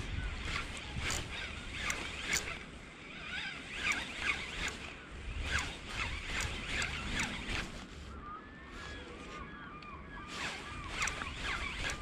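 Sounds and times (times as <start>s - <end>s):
wind buffeting microphone: 0.0s - 2.6s, 3.8s - 7.9s
short high-pitched squeaks: 3.2s - 7.9s, 10.2s - 12.0s.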